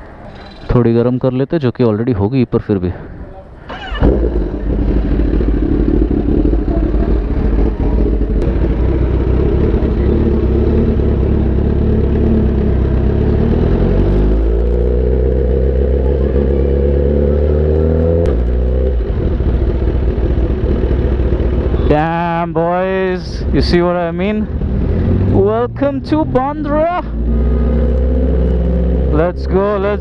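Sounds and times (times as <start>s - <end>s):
motorcycle engine idling and revving: 3.7s - 30.0s.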